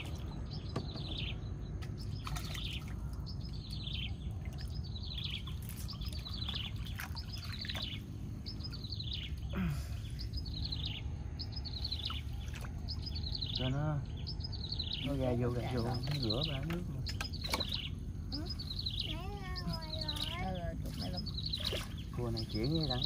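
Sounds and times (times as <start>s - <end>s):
steady low rumble: 0.0s - 23.0s.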